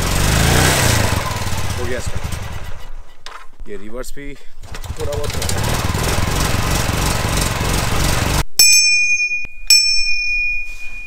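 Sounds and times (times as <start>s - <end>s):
motorcycle engine running: 0.0s - 3.2s, 4.6s - 8.4s
small bell ringing: 8.6s - 11.0s.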